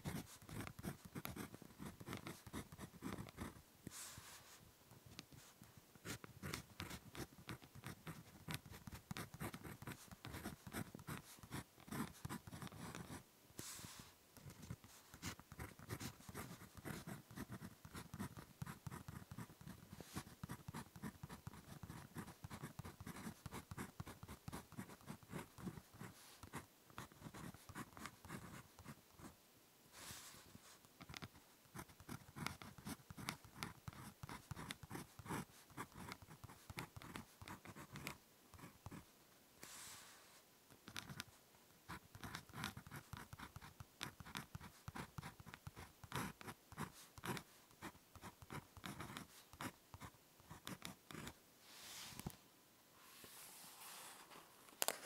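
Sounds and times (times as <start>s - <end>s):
ballpoint pen writing on paper: 0.0s - 3.6s, 6.0s - 13.2s, 14.4s - 29.0s, 31.0s - 39.0s, 40.8s - 41.3s, 41.9s - 51.4s.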